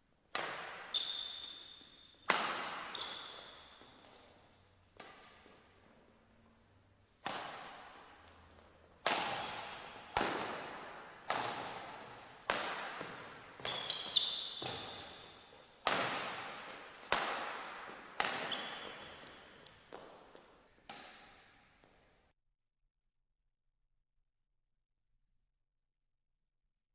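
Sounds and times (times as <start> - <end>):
rackets hitting shuttlecock: 0.3 - 6.0, 7.2 - 21.6
shoes squeaking on court floor: 0.4 - 22.1.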